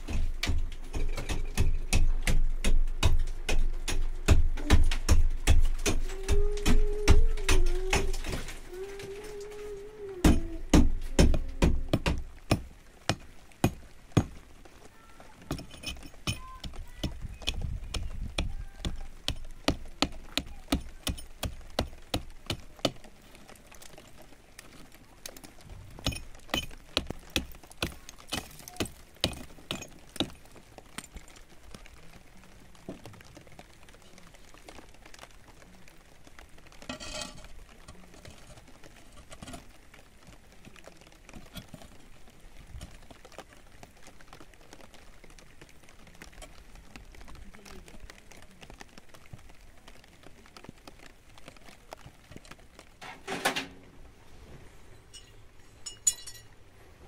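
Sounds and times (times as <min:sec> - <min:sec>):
glass and tools clinking: 0:15.5 - 0:16.6, 0:26.0 - 0:26.8, 0:36.9 - 0:37.5, 0:55.0 - 0:56.6.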